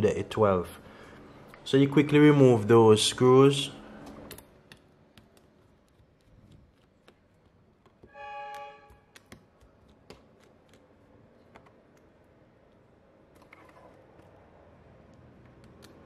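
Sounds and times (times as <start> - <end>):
screwdriver clicks and taps: 4.3 - 8.1, 9.1 - 13.5
short pitched tone: 8.1 - 9.0.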